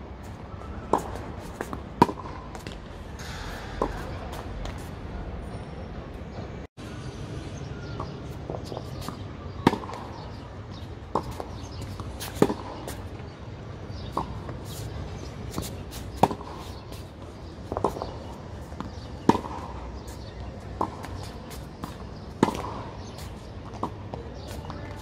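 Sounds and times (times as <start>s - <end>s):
tennis ball bouncing on court: 0.9s - 4.9s, 8.0s - 13.3s, 13.9s - 25.0s
racket hitting tennis ball: 0.9s - 5.0s, 8.6s - 13.1s, 13.9s - 25.0s.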